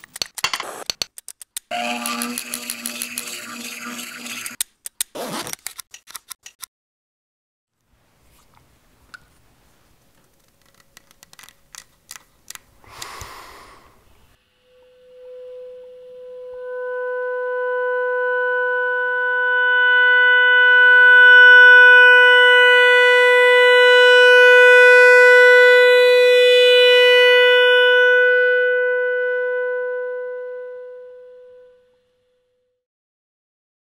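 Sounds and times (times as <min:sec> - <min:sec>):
clarinet holding long note: 0:14.4 - 0:32.6.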